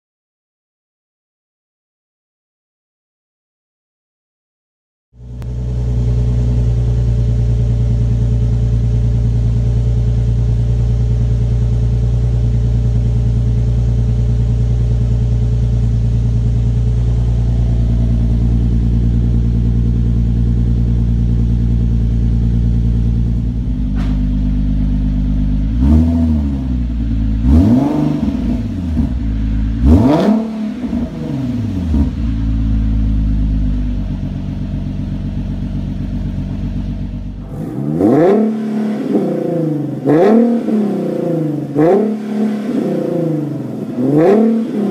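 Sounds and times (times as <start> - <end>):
car engine idling: 5.2 - 44.9
engine revving: 14.0 - 44.9.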